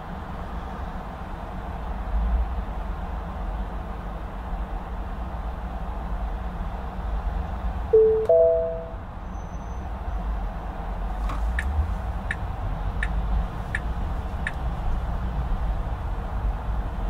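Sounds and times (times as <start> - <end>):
car road and engine rumble: 0.0 - 17.0
loud two-note tone: 8.0 - 9.0
turn signal ticking: 11.6 - 14.6.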